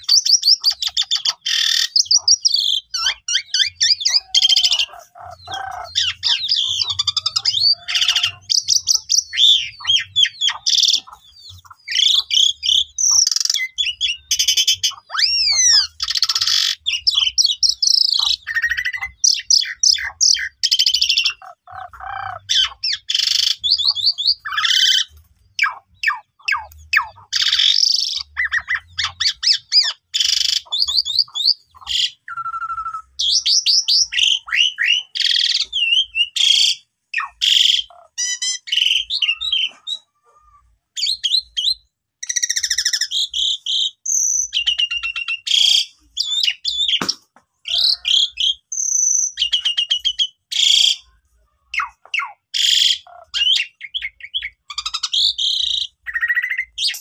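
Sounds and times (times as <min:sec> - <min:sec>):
harsh squawky bird notes: 0:00.0 - 0:17.4
starling singing chattering song: 0:00.0 - 0:57.0.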